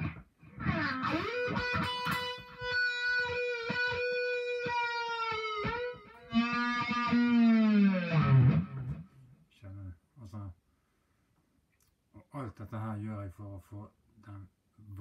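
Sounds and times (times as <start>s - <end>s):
electric guitar notes: 0.0s - 9.2s.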